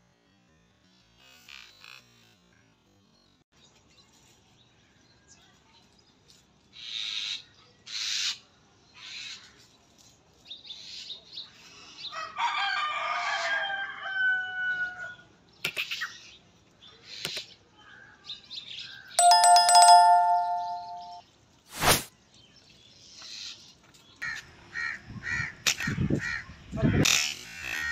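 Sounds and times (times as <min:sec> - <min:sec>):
rooster crowing: 0:12.3 - 0:15.0
electronic chime: 0:19.2 - 0:21.2.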